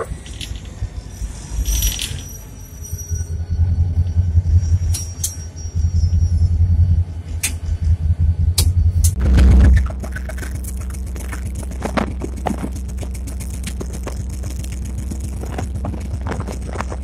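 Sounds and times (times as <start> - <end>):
sharp clicks and rattles: 0.0 - 1.0, 8.5 - 17.0
locomotive engine rumble: 0.0 - 17.0.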